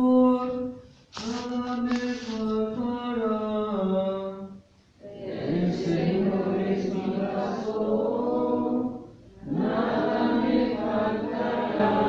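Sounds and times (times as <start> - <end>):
congregation singing a chant: 5.0 - 12.0.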